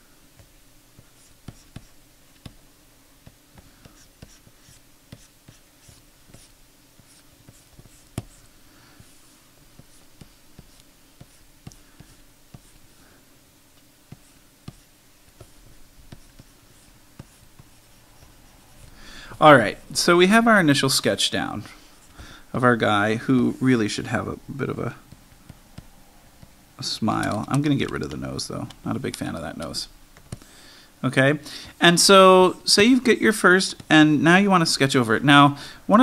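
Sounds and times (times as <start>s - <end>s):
stylus tapping and scratching: 0.4s - 2.6s, 3.2s - 12.8s, 13.8s - 20.2s, 24.6s - 30.5s.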